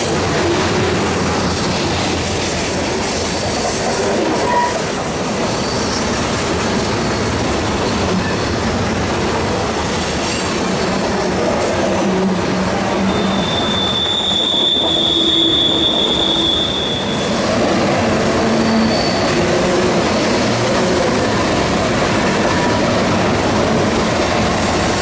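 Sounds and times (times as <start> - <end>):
train cars rolling on rails: 0.0 - 25.0
high wheel squeal: 4.3 - 6.2, 12.8 - 20.5.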